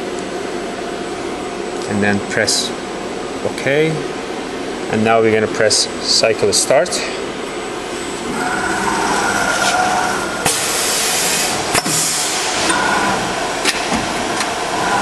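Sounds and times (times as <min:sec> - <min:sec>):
axis drives whining: 0:07.2 - 0:15.0
compressed air hissing: 0:08.3 - 0:12.7.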